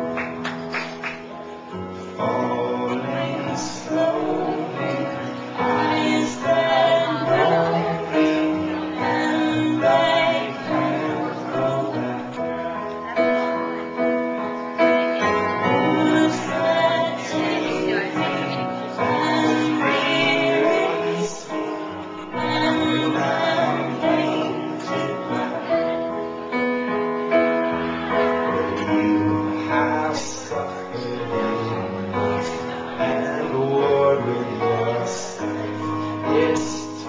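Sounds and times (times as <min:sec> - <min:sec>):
person singing: 0:02.0 - 0:13.1, 0:15.2 - 0:26.4, 0:27.9 - 0:37.0.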